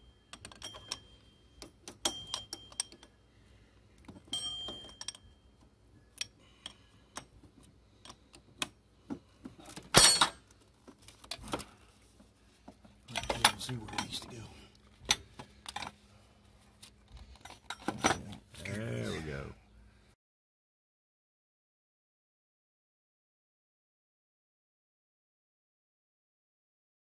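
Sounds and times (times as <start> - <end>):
wrench clinking against metal: 0.3 - 3.2, 4.3 - 5.4, 9.9 - 10.5.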